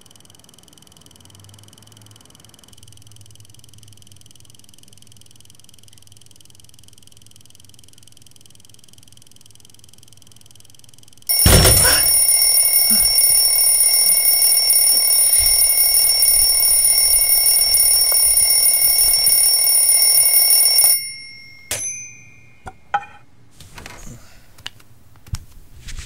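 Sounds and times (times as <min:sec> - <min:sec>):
alarm ringing: 0:11.3 - 0:22.9.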